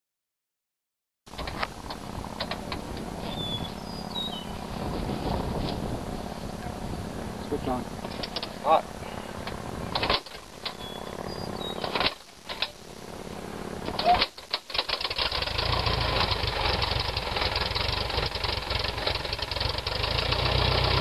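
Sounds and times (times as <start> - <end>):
aircraft engine idling: 1.4 - 21.0
propeller knocks: 8.0 - 8.6.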